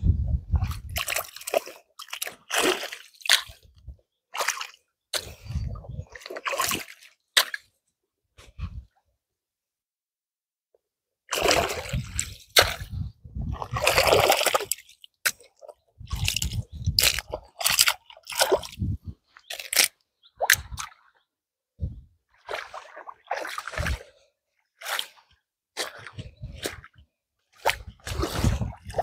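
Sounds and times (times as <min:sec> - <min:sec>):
water splashing and sloshing: 0:00.0 - 0:07.8, 0:11.3 - 0:29.0
crunching: 0:19.4 - 0:20.0.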